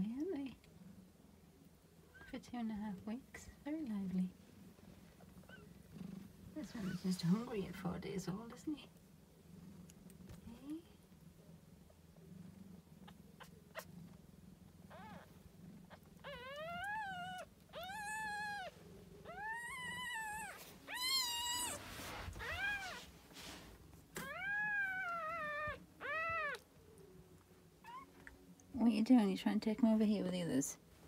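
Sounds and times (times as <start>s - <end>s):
cat meowing: 15.9s - 23.0s, 24.2s - 26.6s.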